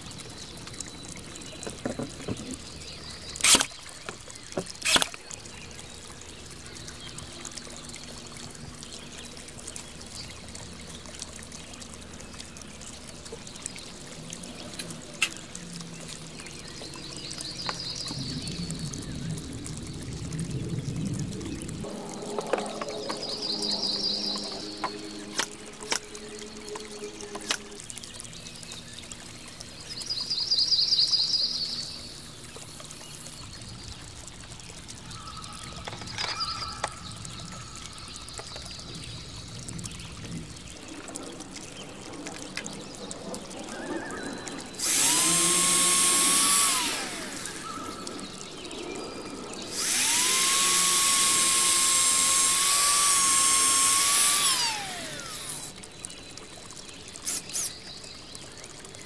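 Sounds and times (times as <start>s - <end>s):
electric drill boring into wood: 3.4s - 3.7s, 44.8s - 48.0s, 49.7s - 55.7s.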